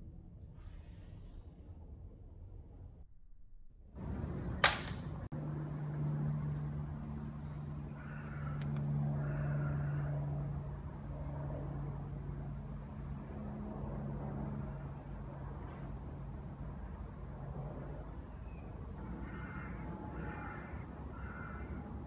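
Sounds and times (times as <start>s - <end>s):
low engine hum: 1.6s - 22.0s
sharp click: 4.6s - 5.1s.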